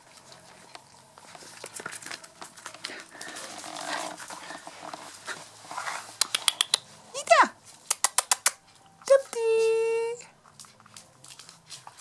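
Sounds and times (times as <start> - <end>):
rustling on fabric blanket: 0.0 - 6.2
puppies snuffling: 0.0 - 7.1.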